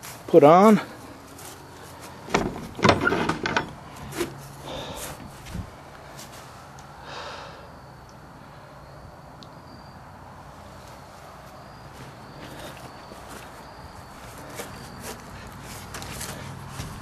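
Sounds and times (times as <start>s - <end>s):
faint outdoor background: 0.0s - 17.0s
person exhaling near microphone: 7.0s - 7.7s.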